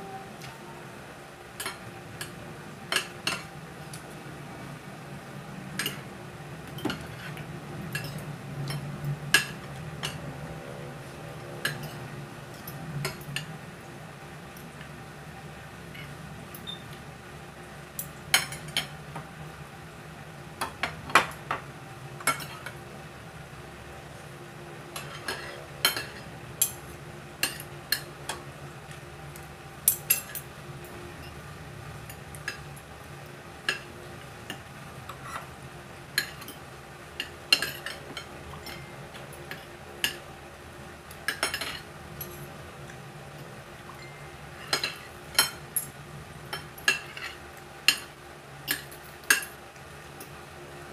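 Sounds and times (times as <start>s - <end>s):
cutlery clinking on a plate: 37.2s - 38.9s, 46.5s - 49.6s.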